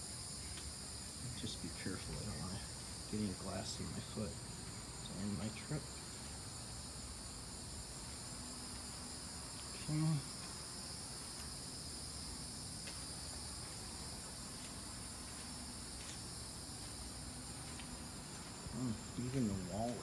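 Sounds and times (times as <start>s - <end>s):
insects chirping shrilly: 0.0s - 20.0s.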